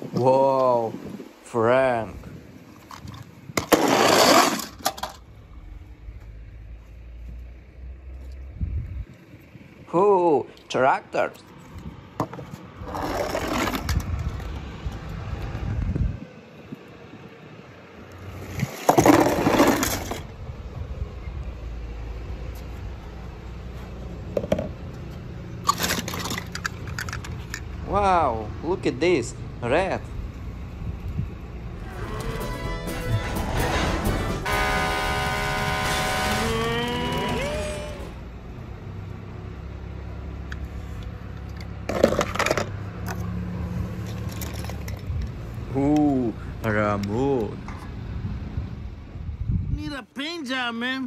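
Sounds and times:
steady low rumble: 5.2s - 10.0s
plastic toys clattering: 25.6s - 27.7s, 44.2s - 45.3s.

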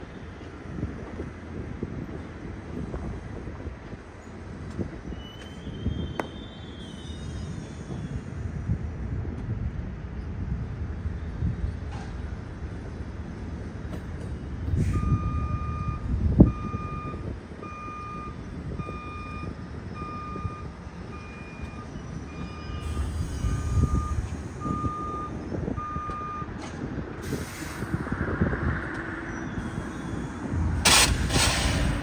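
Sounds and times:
subway train rumbling: 0.0s - 32.0s
vehicle backup alarm beeping: 14.3s - 26.6s
air hiss: 27.2s - 28.0s, 30.8s - 32.0s.

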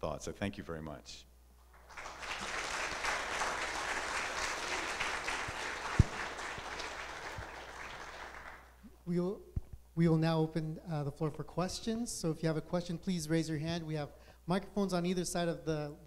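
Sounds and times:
audience applauding: 1.8s - 8.8s.

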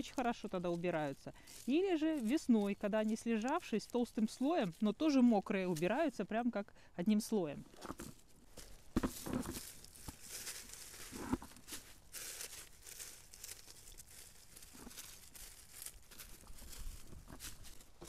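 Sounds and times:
dead leaves rustling: 0.0s - 6.3s, 7.8s - 18.0s.

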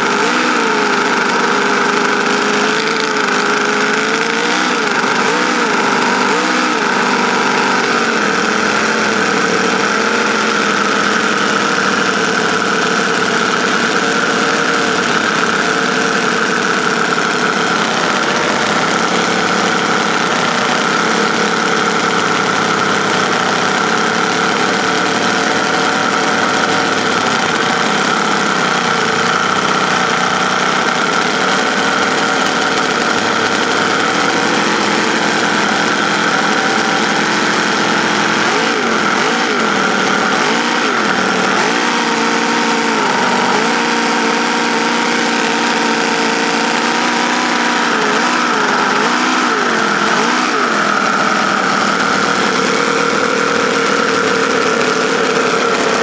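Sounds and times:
model engine running: 0.0s - 56.0s.

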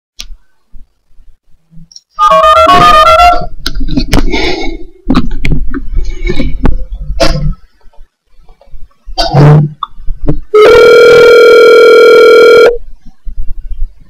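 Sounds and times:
clicks and crackling line noise: 0.2s - 1.0s, 1.8s - 2.2s, 3.6s - 4.4s, 5.1s - 10.5s
touch-tone dialing beeps: 11.3s - 12.8s.

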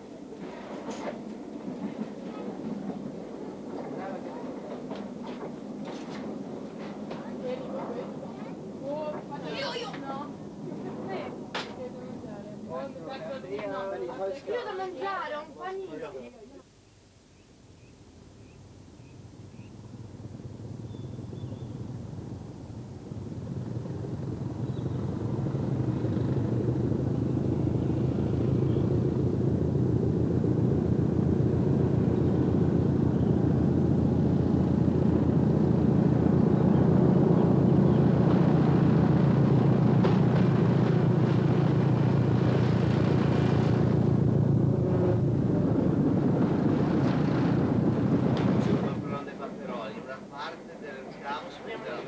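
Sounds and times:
diesel train engine passing: 19.3s - 52.0s.

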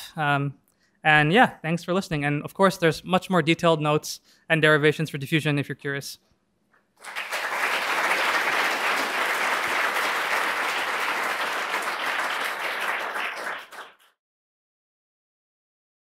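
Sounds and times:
audience applauding: 7.0s - 14.1s.

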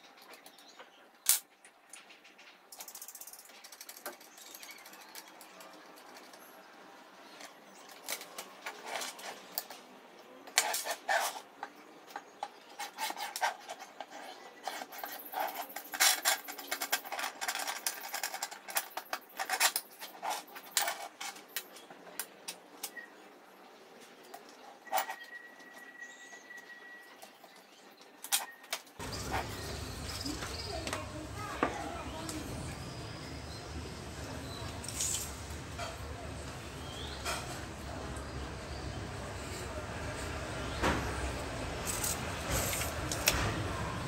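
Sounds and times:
plastic and metal parts rattling: 0.0s - 6.6s, 7.2s - 9.9s, 10.5s - 23.0s.

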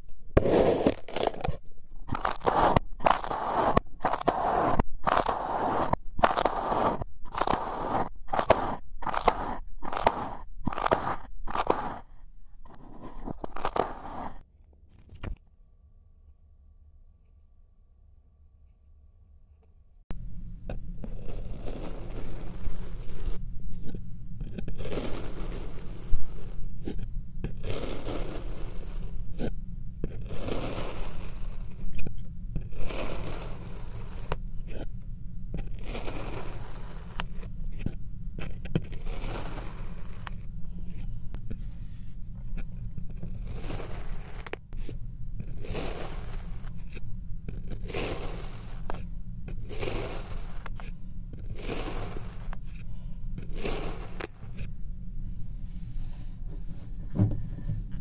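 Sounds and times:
steady low hum: 0.0s - 58.0s
knife scraping through sand: 0.4s - 1.5s, 2.1s - 12.1s, 12.7s - 14.4s, 21.0s - 23.4s, 24.6s - 27.0s, 27.6s - 29.5s, 30.2s - 31.9s, 32.7s - 34.8s, 35.8s - 37.9s, 38.9s - 40.5s, 43.2s - 47.0s, 47.6s - 49.0s, 49.6s - 50.9s, 51.5s - 52.8s, 53.4s - 54.7s.

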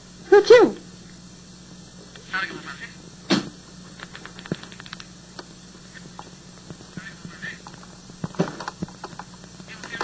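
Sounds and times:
tape hum and hiss: 0.0s - 10.0s
line crackles and clicks: 3.6s - 10.0s.

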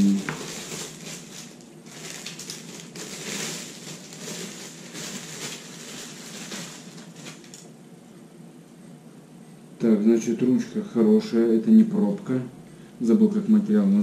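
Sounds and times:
plastic film crinkling: 0.0s - 7.7s.

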